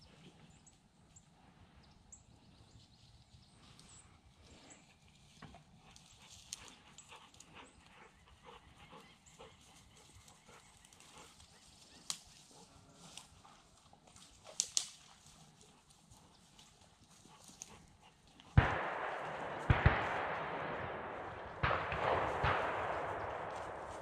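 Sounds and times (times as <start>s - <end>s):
rustling in dry field cover: 0.0s - 24.0s
crunching footsteps: 8.9s - 24.0s.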